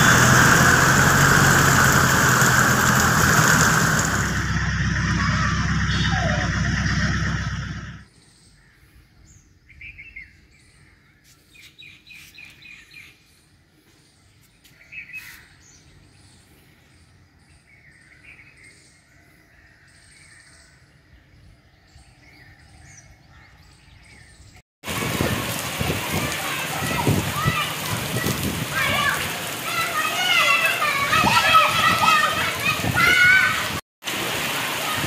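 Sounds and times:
loud rain and water: 0:00.0 - 0:06.5, 0:24.8 - 0:35.0.

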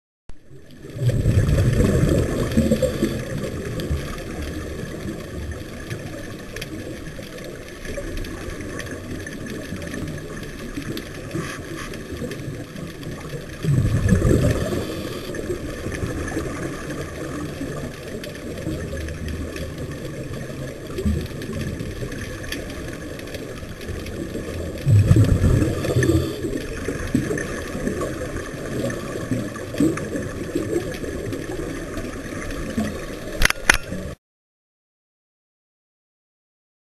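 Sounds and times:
underwater exhaled bubbles: 0:00.4 - 0:34.2.

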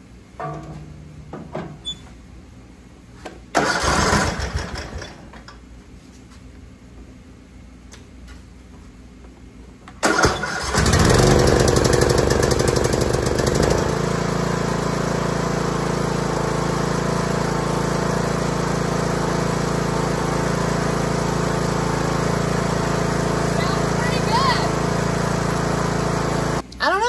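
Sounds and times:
electric starter cranking: 0:03.5 - 0:05.5, 0:10.0 - 0:26.6
mower engine running: 0:03.6 - 0:05.2, 0:10.0 - 0:26.6.

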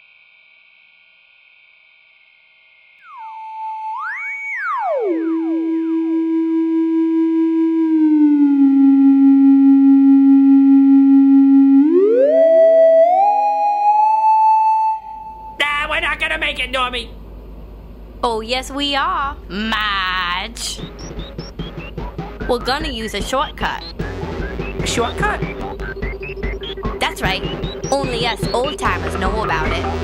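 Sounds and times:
gliding electronic tones: 0:20.5 - 0:30.0.

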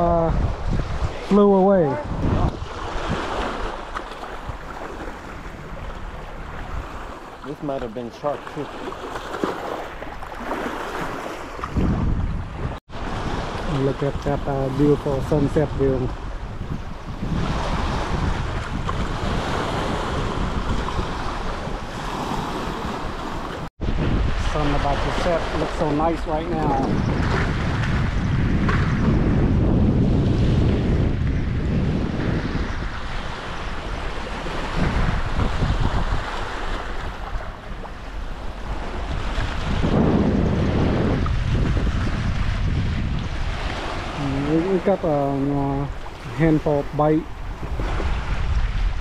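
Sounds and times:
water washing against shore: 0:00.0 - 0:16.4, 0:30.2 - 0:49.0
wind buffeting microphone: 0:00.0 - 0:49.0.

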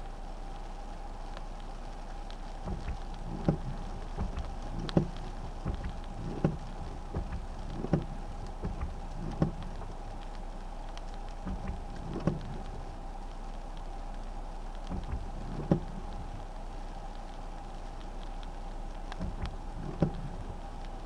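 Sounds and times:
light rain ticking on glass: 0:00.0 - 0:21.0
steady faint hum: 0:00.0 - 0:21.0
windshield wipers thumping: 0:02.2 - 0:13.1, 0:14.8 - 0:17.1, 0:18.4 - 0:21.0.

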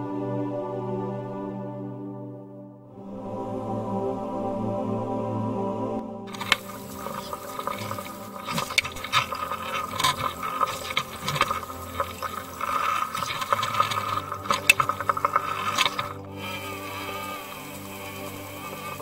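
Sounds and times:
faint steady whine: 0:06.3 - 0:19.0
water rushing and bubbling: 0:06.3 - 0:19.0.

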